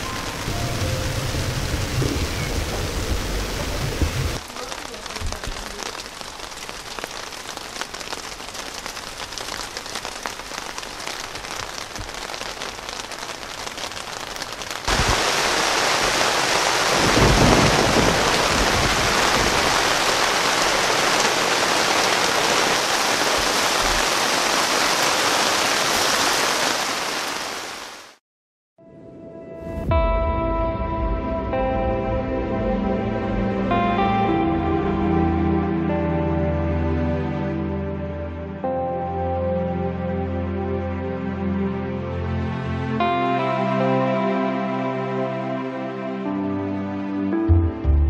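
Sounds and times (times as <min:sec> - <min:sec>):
rain falling on a tent: 0:00.0 - 0:28.2.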